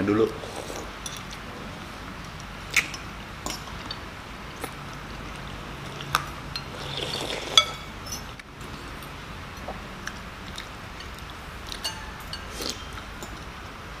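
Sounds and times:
cutlery clinking on bowls: 0:07.4 - 0:08.8, 0:11.0 - 0:13.5.

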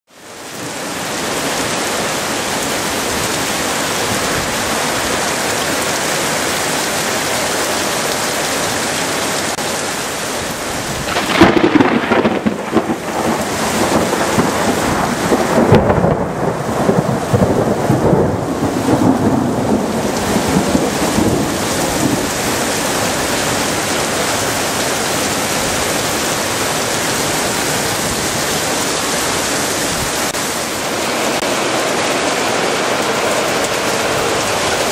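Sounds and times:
heavy rain falling: 0:00.1 - 0:34.9
rumbling thunder: 0:10.9 - 0:22.6.

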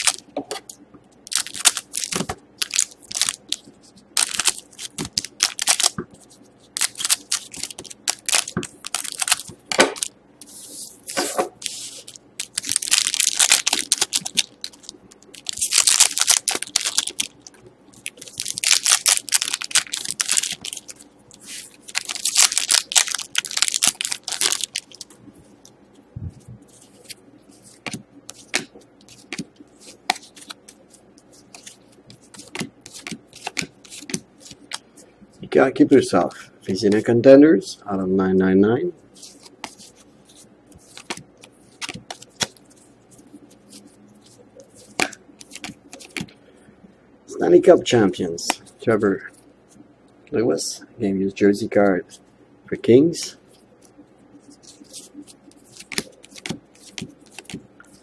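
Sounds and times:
foil wrappers crinkling: 0:00.0 - 0:00.2, 0:01.2 - 0:25.7, 0:26.6 - 0:34.8, 0:39.2 - 0:46.3, 0:53.9 - 0:58.0
cards being shuffled: 0:04.2 - 0:17.3, 0:18.0 - 0:25.6, 0:26.6 - 0:34.8, 0:39.2 - 0:46.3, 0:53.9 - 0:58.0.

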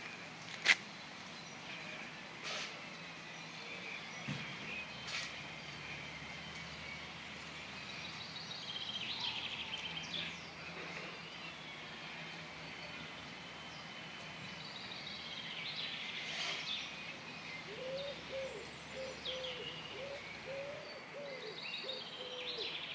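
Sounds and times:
outdoor background noise: 0:00.0 - 0:22.9.

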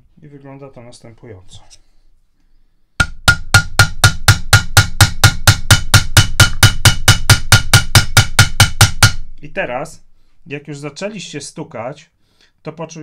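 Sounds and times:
hammer tapping wooden dowel: 0:03.0 - 0:09.4.

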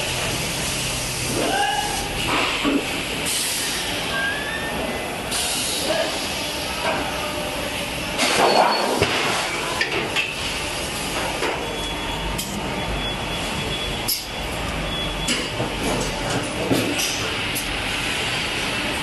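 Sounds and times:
machine hiss: 0:00.2 - 0:04.2, 0:05.2 - 0:07.1.

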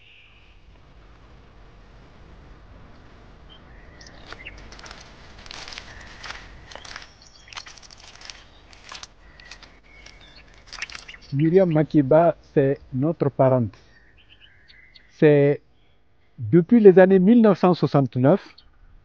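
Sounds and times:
faint bird chirps: 0:00.0 - 0:00.7, 0:03.4 - 0:12.0, 0:13.8 - 0:16.6, 0:18.4 - 0:18.8
footsteps through tall grass: 0:04.0 - 0:11.7.

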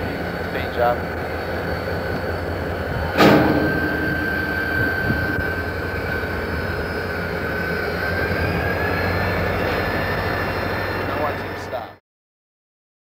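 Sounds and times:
diesel locomotive engine running: 0:00.0 - 0:12.0
thin high whine: 0:00.0 - 0:12.0
sharp bang: 0:03.1 - 0:06.4.

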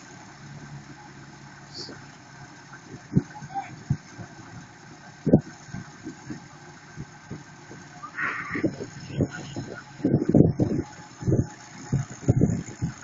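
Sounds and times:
diesel tractor engines idling: 0:00.0 - 0:13.0
low thumps: 0:08.5 - 0:13.0.

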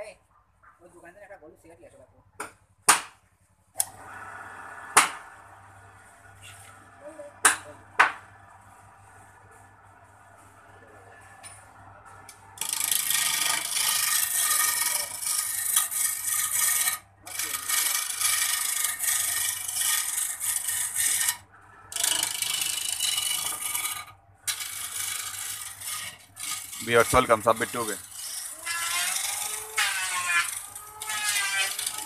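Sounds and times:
lathe motor humming: 0:03.8 - 0:32.0
chisel scraping wood on lathe: 0:12.3 - 0:32.0.

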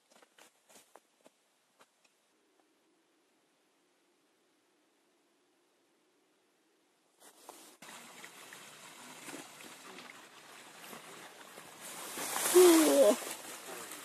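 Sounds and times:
mountain stream rushing: 0:07.4 - 0:14.0.

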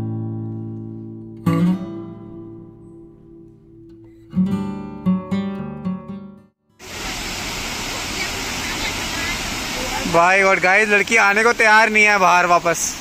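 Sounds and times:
acoustic guitar strums: 0:00.0 - 0:06.4.

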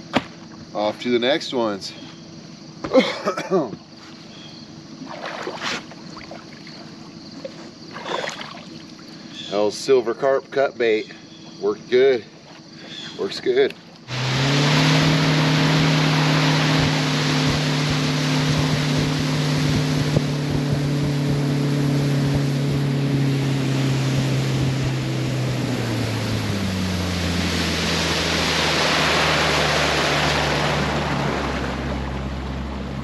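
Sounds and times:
outboard motor running: 0:02.8 - 0:10.3, 0:11.2 - 0:33.0
wind and water rushing: 0:14.1 - 0:33.0.

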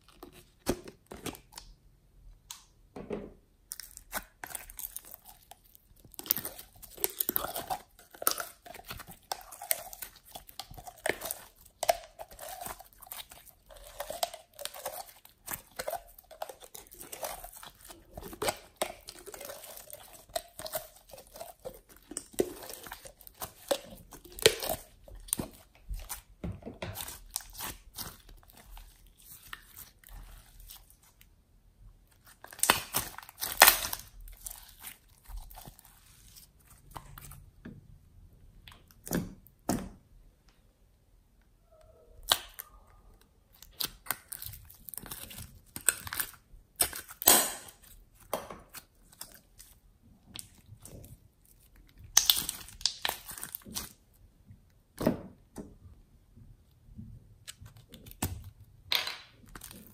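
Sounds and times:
slime clicking and crackling: 0:03.7 - 0:26.3, 0:26.9 - 0:31.2, 0:32.1 - 0:37.4, 0:42.2 - 0:54.2, 0:57.4 - 0:58.6, 0:59.2 - 0:59.9.

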